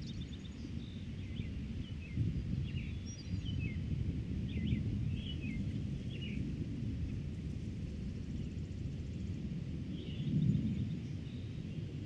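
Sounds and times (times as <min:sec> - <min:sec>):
songbirds chirping: 0:00.0 - 0:07.2, 0:07.9 - 0:12.0
wind rumbling on microphone: 0:00.0 - 0:12.0.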